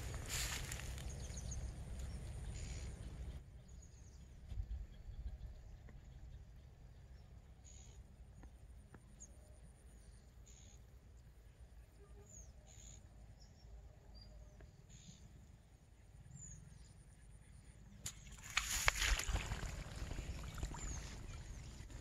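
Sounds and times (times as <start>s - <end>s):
faint bird chirps: 0.0s - 22.0s
fish splashing in water: 18.1s - 22.0s.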